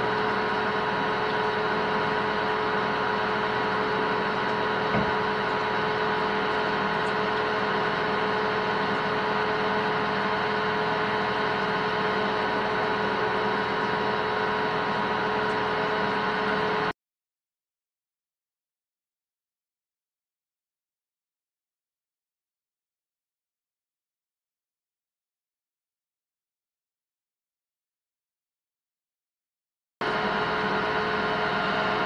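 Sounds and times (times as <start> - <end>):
metal lathe humming: 0.0 - 16.9, 30.0 - 32.0
short knock: 4.9 - 5.1.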